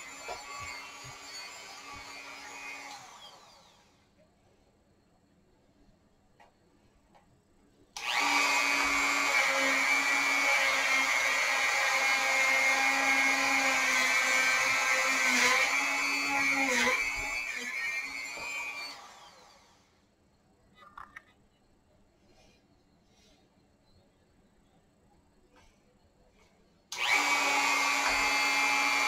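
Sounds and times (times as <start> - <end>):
rotary tool whining on wood: 0.0 - 4.1, 8.0 - 19.9, 26.9 - 29.0.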